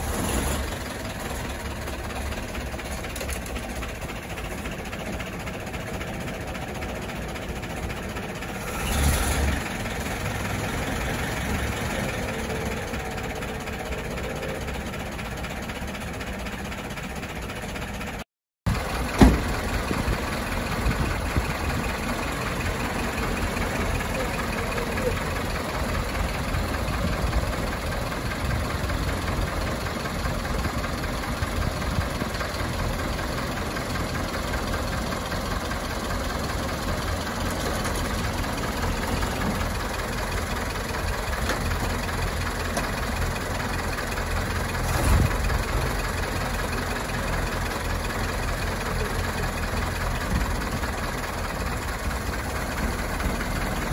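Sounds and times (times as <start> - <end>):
bus engine idling: 0.0 - 53.9
brief loud thud: 19.2 - 19.6.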